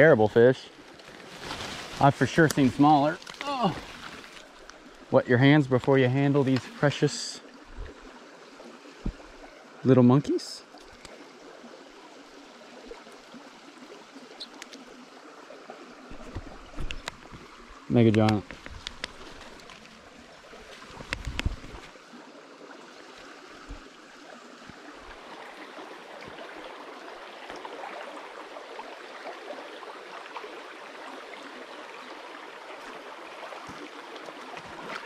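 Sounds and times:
creek flowing over stones: 0.0s - 35.0s
short thump: 9.0s - 9.3s.

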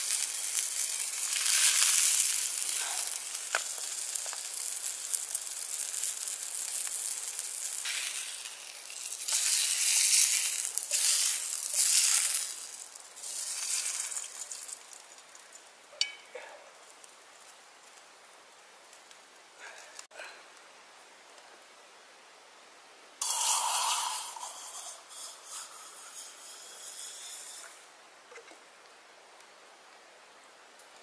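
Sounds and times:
fish sizzling in a frying pan: 0.0s - 16.2s, 23.2s - 27.8s.

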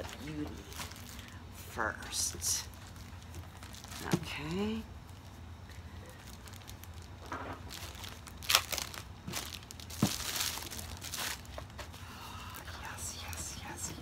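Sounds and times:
packaging crinkling and rustling: 0.0s - 1.4s, 2.6s - 12.7s.

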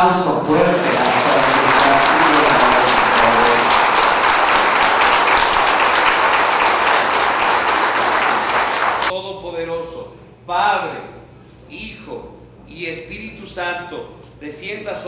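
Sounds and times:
crowd applauding: 0.4s - 9.1s.

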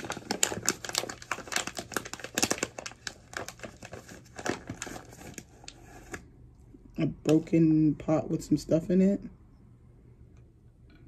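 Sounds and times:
packaging bags crinkling: 0.0s - 6.2s.

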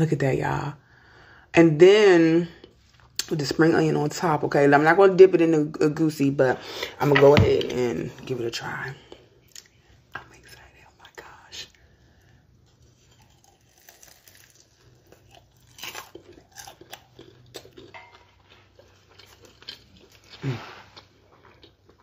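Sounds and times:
crunching and chewing: 11.7s - 22.0s
crisp crackles: 12.8s - 17.0s.

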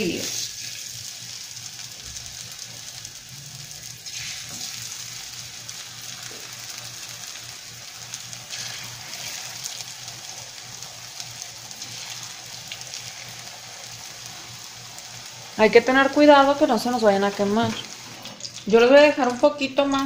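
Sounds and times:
food frying in hot oil: 0.0s - 20.0s.

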